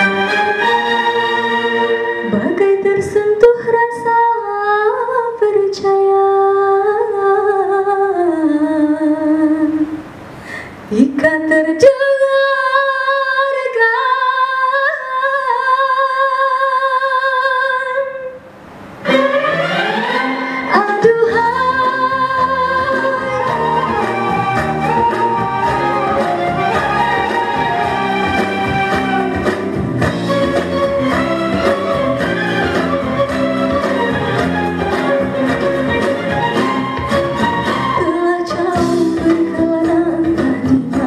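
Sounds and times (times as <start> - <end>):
instrumental accompaniment: 0.0 - 3.8, 18.7 - 41.0
woman singing into microphone: 2.2 - 10.0, 10.9 - 18.4, 20.6 - 25.5, 37.8 - 41.0.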